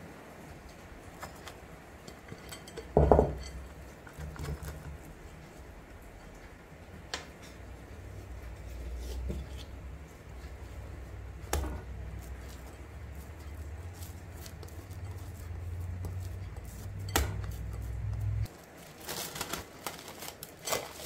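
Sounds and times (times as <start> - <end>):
glass bowl knock: 3.0 - 3.4
brush rubbing in bowl: 8.1 - 18.5.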